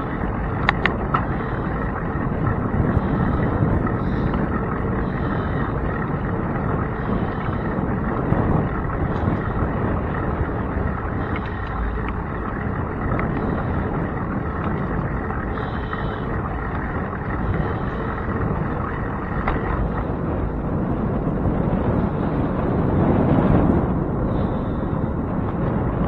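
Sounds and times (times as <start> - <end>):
road noise: 0.0 - 26.0
wind buffeting microphone: 0.0 - 26.0
faint ticks: 0.6 - 1.3.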